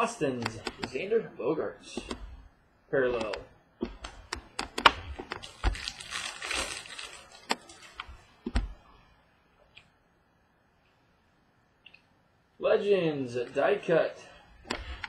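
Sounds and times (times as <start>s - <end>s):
cards clicking as flicked: 3.1s - 3.4s
cards rustling: 3.1s - 8.1s.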